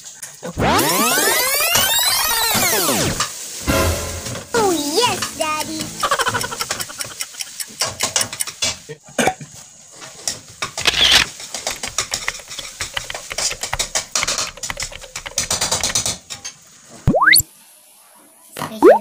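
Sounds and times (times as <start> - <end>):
metal utensils clattering: 3.6 - 8.9, 10.2 - 16.6.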